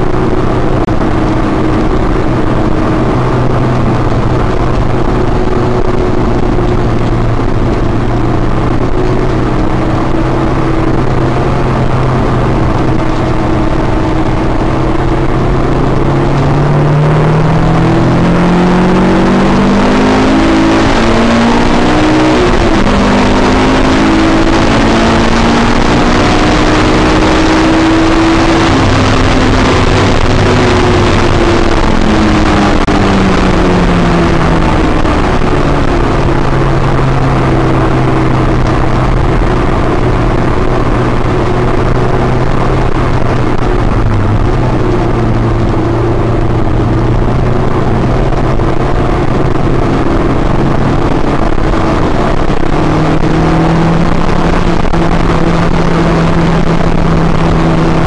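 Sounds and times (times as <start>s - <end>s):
car engine revving: 0.0s - 58.0s
road and wind noise: 0.0s - 58.0s.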